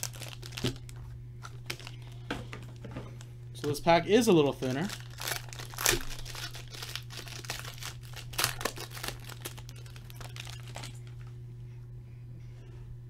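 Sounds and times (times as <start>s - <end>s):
foil wrapper crinkling: 0.0s - 3.3s, 4.2s - 11.3s.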